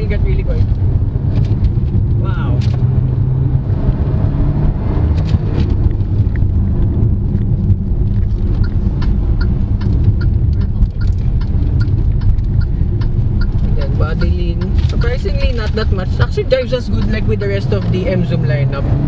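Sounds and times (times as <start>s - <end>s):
engine and road rumble: 0.0s - 19.0s
faint regular ticking: 8.2s - 18.4s.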